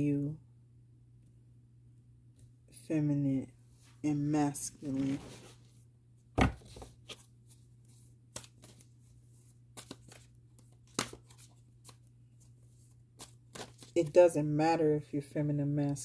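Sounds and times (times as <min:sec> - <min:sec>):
tarot cards shuffled by hand: 0:06.4 - 0:14.2.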